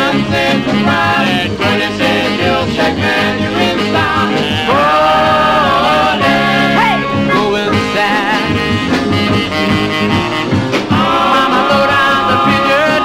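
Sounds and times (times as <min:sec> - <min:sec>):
doo-wop song from a record: 0:00.0 - 0:13.0.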